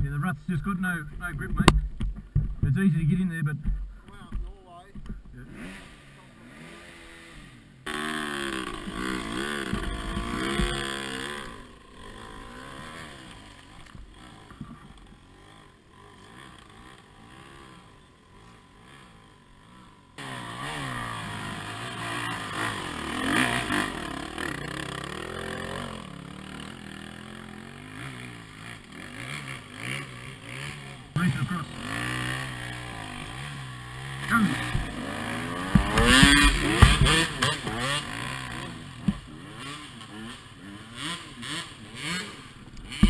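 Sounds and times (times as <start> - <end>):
dirt bike engines revving: 0.0 - 43.0.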